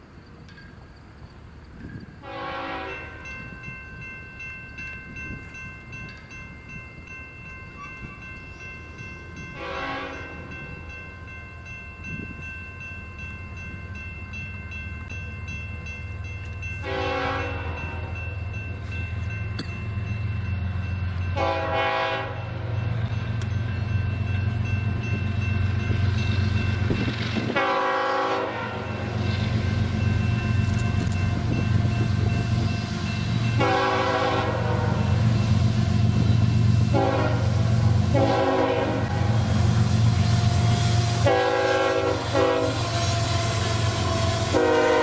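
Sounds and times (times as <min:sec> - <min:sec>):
locomotive engines rumbling: 0:00.0 - 0:45.0
locomotive air horn blasts: 0:02.2 - 0:03.2, 0:09.6 - 0:10.4, 0:16.8 - 0:18.2, 0:21.4 - 0:22.7, 0:27.5 - 0:29.0, 0:33.6 - 0:35.2, 0:36.9 - 0:45.0.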